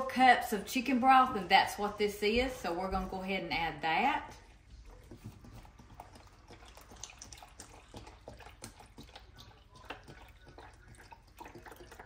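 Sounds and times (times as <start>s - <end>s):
glugs and splashes: 4.5s - 12.0s.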